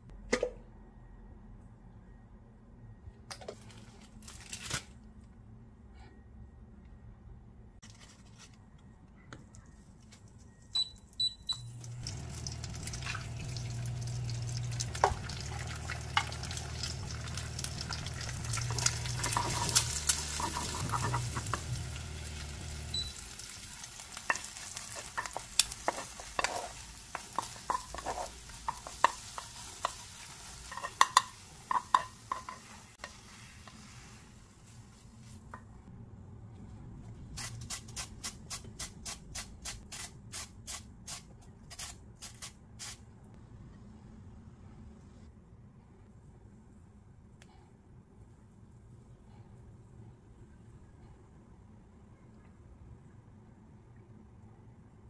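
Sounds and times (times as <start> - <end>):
low hum: 8.7 - 28.9
eggs sizzling in a frying pan: 11.7 - 35.5
wooden spoon tapping and scraping pan: 18.7 - 21.8, 24.2 - 33.2.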